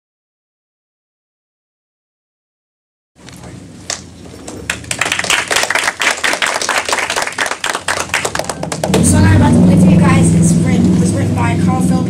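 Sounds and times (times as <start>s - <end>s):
audience applauding: 4.6s - 9.0s.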